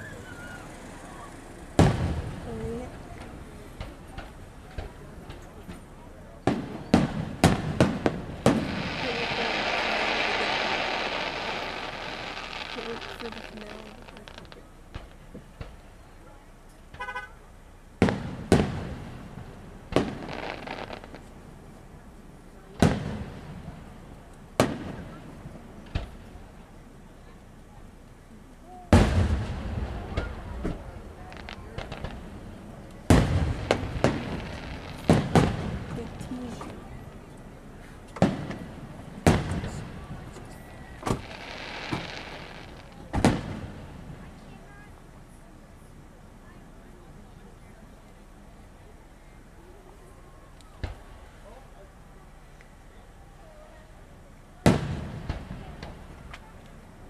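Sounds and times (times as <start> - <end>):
firework shells booming: 1.7 - 15.9, 18.0 - 21.4, 22.7 - 26.4, 28.9 - 37.2, 38.1 - 44.2, 54.7 - 56.4
firework shells bursting: 41.1 - 43.7.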